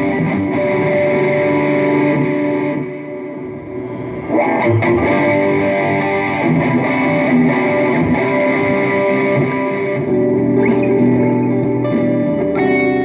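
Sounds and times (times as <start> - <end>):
electric guitar notes and chords: 0.0 - 13.0.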